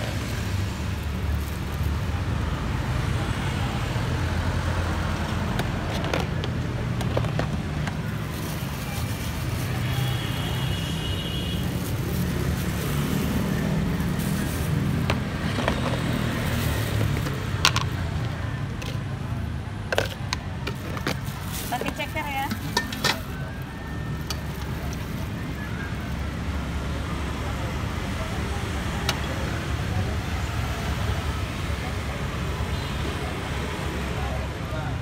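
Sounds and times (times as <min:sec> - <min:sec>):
low rumble of road traffic: 0:00.0 - 0:35.0
utensils clicking against containers: 0:19.9 - 0:23.5.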